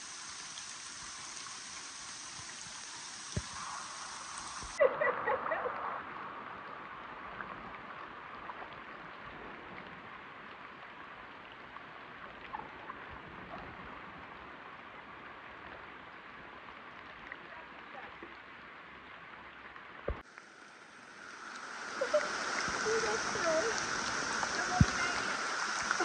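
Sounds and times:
water hissing: 0.0s - 5.6s, 20.2s - 26.0s
faint drips: 19.4s - 26.0s.

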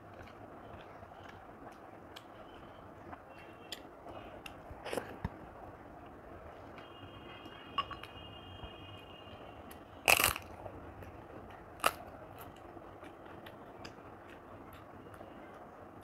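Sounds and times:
person chewing: 10.1s - 11.1s, 11.8s - 13.6s.

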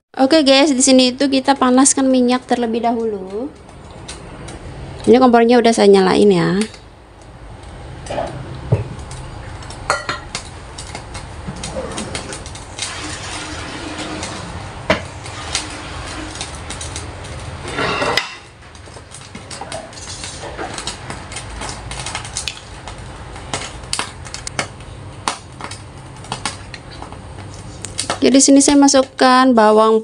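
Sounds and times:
pans and utensils clinking: 9.7s - 17.0s, 17.6s - 22.7s
oil hissing in a wok: 12.6s - 18.2s.

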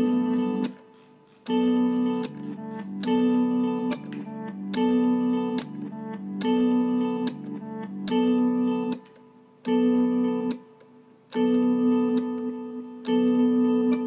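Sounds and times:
repeating chords music: 0.0s - 9.0s.

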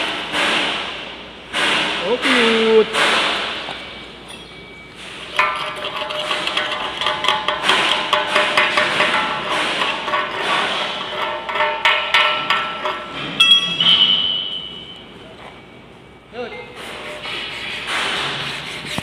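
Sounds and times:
chipping hammer striking steel: 1.6s - 3.5s.

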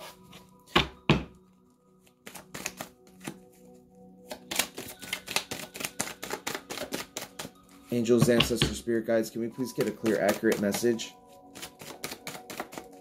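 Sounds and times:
cards flicking and riffling: 2.0s - 3.4s, 4.2s - 7.6s, 9.6s - 13.0s.

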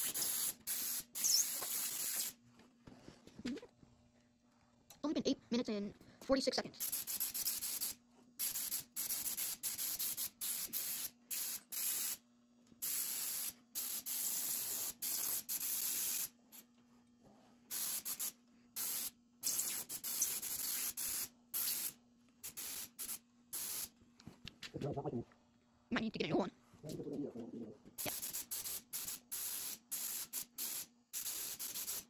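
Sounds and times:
paint spray gun hissing: 0.0s - 2.4s, 6.8s - 12.2s, 12.8s - 16.3s, 17.7s - 23.9s, 28.0s - 32.0s.

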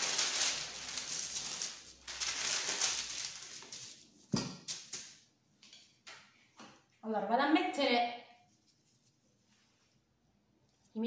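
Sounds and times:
baking paper crinkling: 0.0s - 5.2s.

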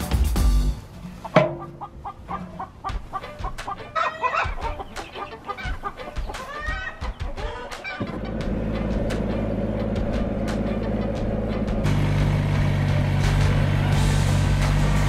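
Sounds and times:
chickens clucking: 1.0s - 11.8s
tractor engine running: 7.9s - 15.0s.

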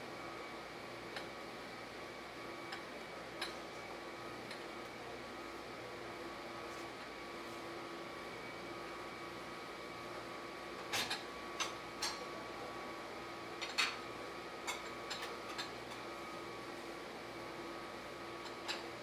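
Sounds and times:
steady machine hum: 0.0s - 19.0s
dishes clinking on metal rack: 10.9s - 12.2s, 13.6s - 14.0s.

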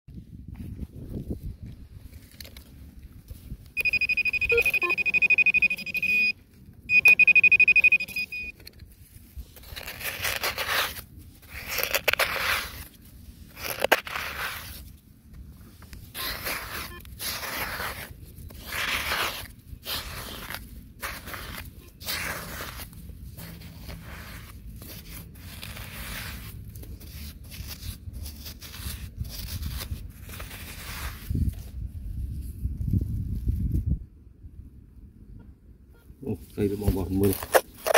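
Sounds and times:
metal detector high tone: 3.8s - 8.6s
hands digging through soil: 8.8s - 33.8s, 36.4s - 37.9s.

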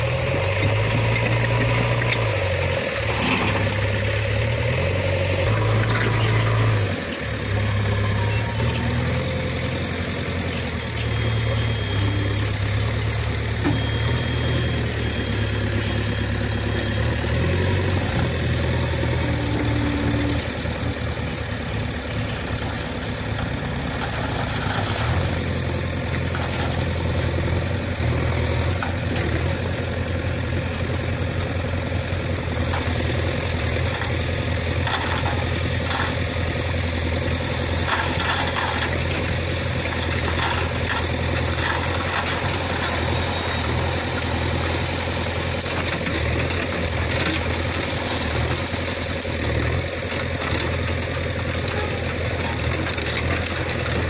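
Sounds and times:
tractor diesel engine running: 0.0s - 54.0s
gravel clicking and rattling: 32.5s - 54.0s.

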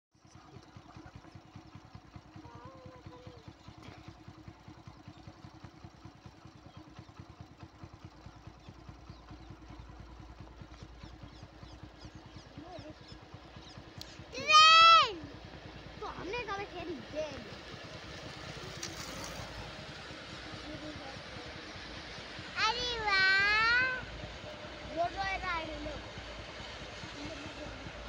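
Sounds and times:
distant freight train rumble: 0.7s - 28.0s
bird chirps: 10.7s - 14.2s.

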